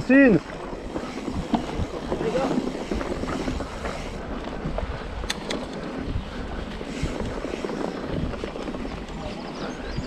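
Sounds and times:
bike tyres and frame rattling: 0.0 - 10.0
sharp clicks: 5.2 - 5.9.

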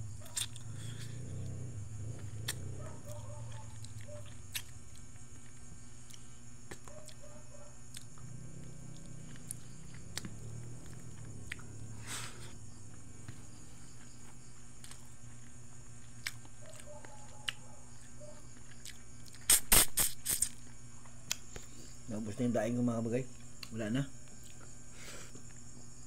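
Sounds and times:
steady low hum: 0.0 - 26.0
man chewing food: 0.1 - 21.9, 23.3 - 25.7
high hiss: 19.4 - 20.5.

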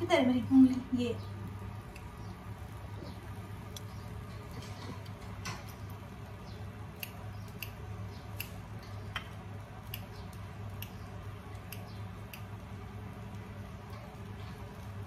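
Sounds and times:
scissors snipping herbs: 6.9 - 12.6.

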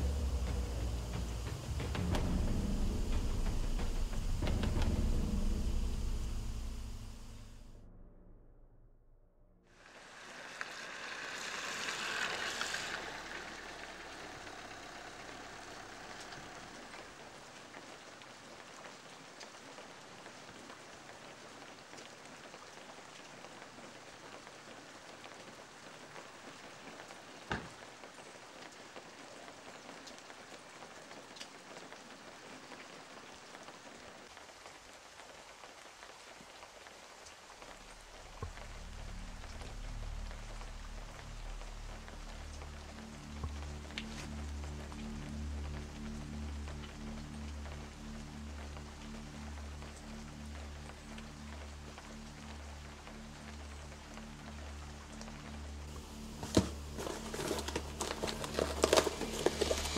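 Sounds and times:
low music: 0.0 - 9.3, 38.5 - 59.9
rain falling on pavement: 9.8 - 59.9.

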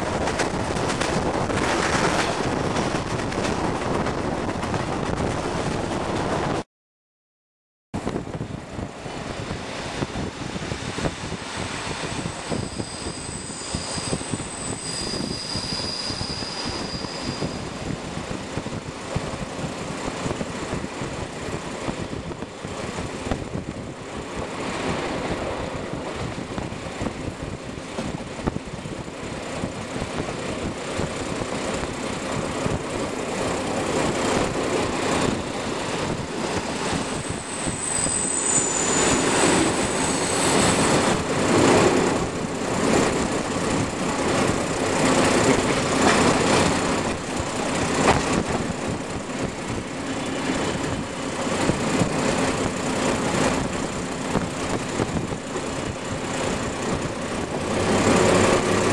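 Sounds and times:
train wheels rumbling on rails: 0.0 - 6.6, 8.0 - 58.9
high-pitched wheel squeal: 12.1 - 18.0, 36.4 - 41.8.

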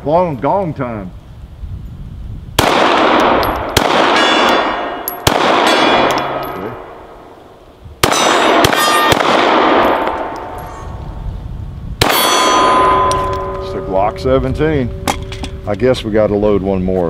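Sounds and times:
gunshots with echo: 2.6 - 7.1, 8.0 - 10.6, 12.0 - 15.3
struck steel ringing: 3.3 - 7.2, 8.0 - 11.0, 12.0 - 16.4.

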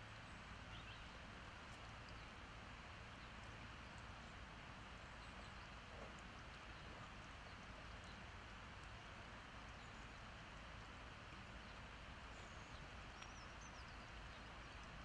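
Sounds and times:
faint outdoor hiss: 0.0 - 15.0
faint high ticks: 1.7 - 2.3, 5.2 - 11.8, 12.7 - 15.0.

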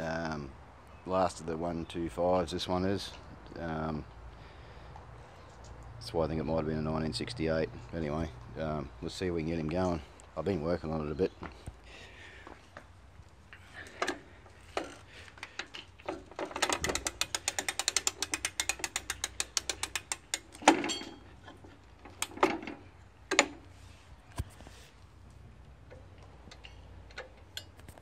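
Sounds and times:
ratchet clicking: 16.4 - 20.8.

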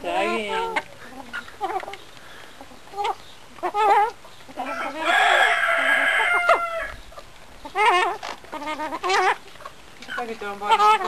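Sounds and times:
hens calling: 0.0 - 11.0
chicken crowing: 3.8 - 7.0.

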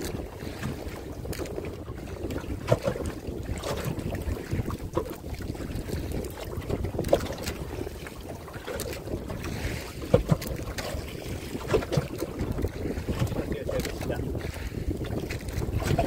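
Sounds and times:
wind rumbling on microphone: 0.0 - 16.0.

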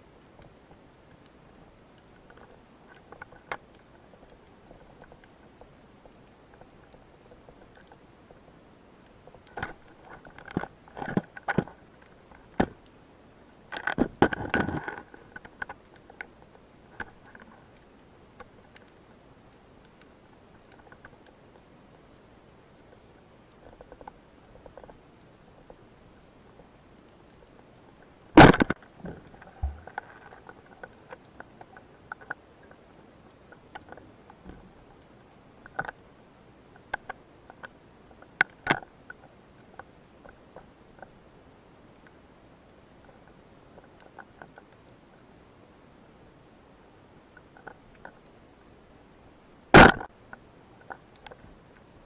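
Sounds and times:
underwater clicks and ticks: 0.3 - 13.0, 13.6 - 22.0, 22.8 - 36.0, 36.7 - 41.2, 43.0 - 45.3, 47.3 - 48.4, 49.8 - 51.9
underwater clicks and knocks: 28.4 - 32.4.

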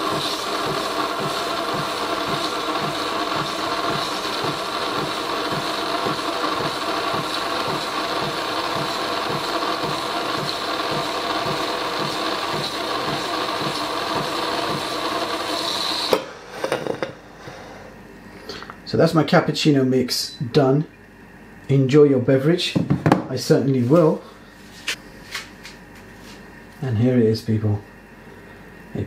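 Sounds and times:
coffee machine frothing milk: 0.0 - 16.2.

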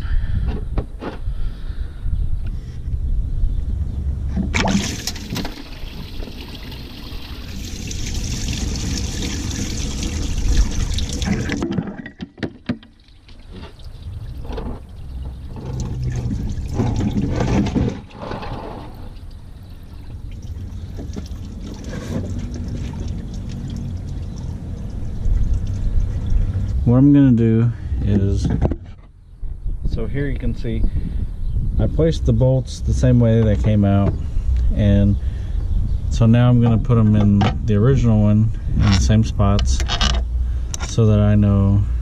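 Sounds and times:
liquid pouring and dripping: 4.7 - 11.7, 12.9 - 17.3, 19.0 - 26.6.

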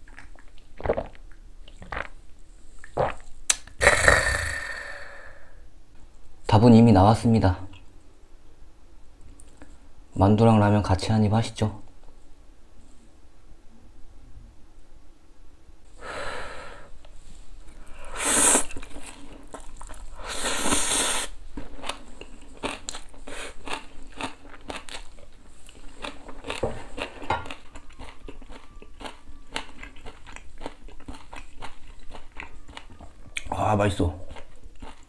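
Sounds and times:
wet chewing: 0.0 - 2.2, 21.6 - 33.6, 34.2 - 35.0
person slurping noodles: 3.8 - 5.5, 18.0 - 18.9, 20.2 - 21.3.

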